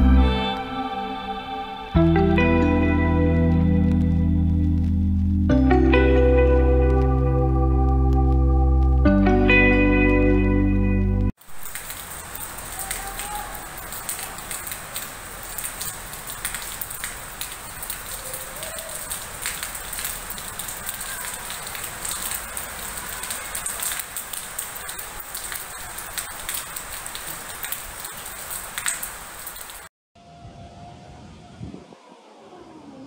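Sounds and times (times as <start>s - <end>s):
raindrops ticking on surfaces: 3.4s - 9.1s, 11.4s - 29.9s
heavy rain hissing: 11.4s - 29.9s.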